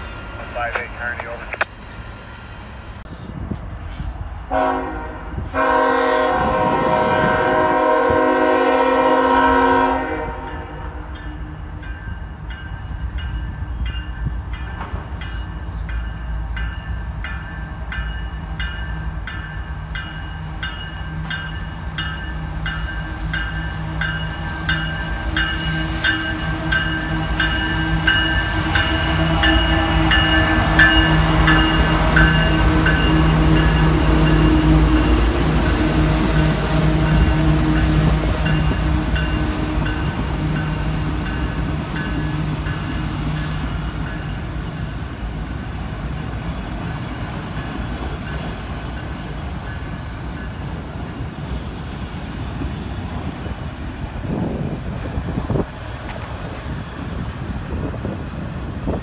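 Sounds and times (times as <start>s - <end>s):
locomotive engines droning: 0.0s - 59.0s
locomotive horn blasts: 4.5s - 11.0s.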